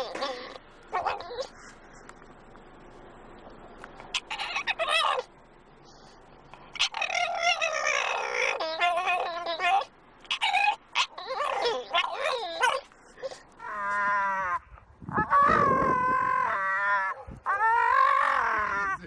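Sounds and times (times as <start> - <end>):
puppy howling and yelping: 0.0 - 1.6, 4.1 - 5.3, 6.7 - 19.0.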